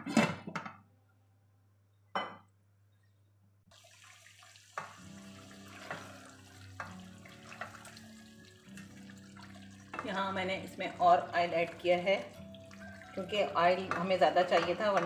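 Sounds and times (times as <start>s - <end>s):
chicken sizzling in oil: 3.7s - 15.0s
spatula knocking against pot: 13.6s - 15.0s.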